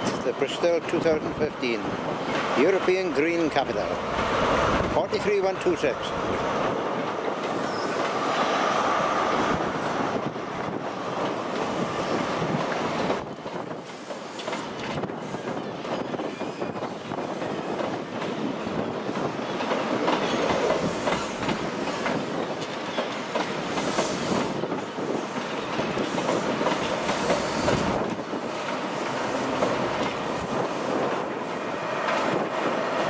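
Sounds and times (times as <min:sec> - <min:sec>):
train wheels clattering over rail joints: 0:09.3 - 0:33.0.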